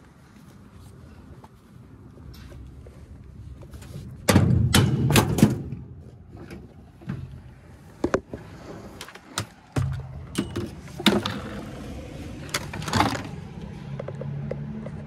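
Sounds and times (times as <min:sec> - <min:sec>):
metal clanking and knocks: 0:04.2 - 0:07.4, 0:09.7 - 0:11.7.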